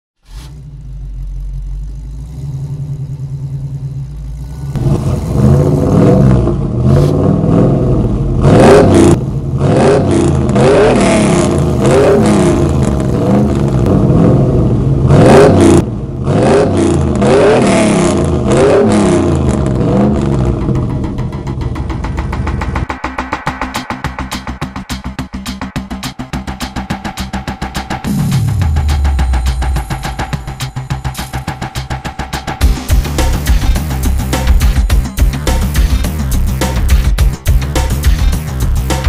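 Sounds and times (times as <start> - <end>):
car engine revving: 0.2 - 39.0
sharp hits: 20.1 - 39.0.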